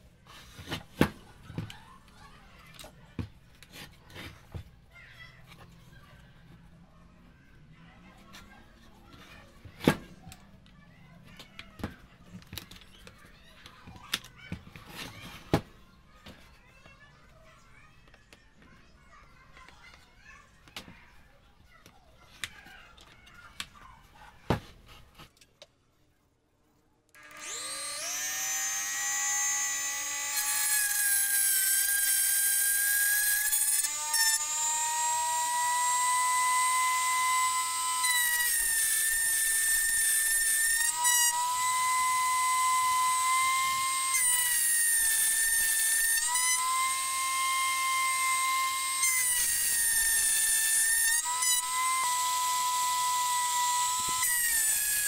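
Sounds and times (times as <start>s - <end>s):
rotary tool whining: 27.1s - 55.0s.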